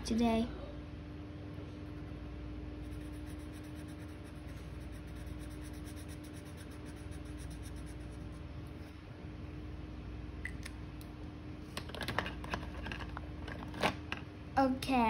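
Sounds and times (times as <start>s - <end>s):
steady low hum: 0.0s - 15.0s
marker scribbling on paper: 2.8s - 8.4s.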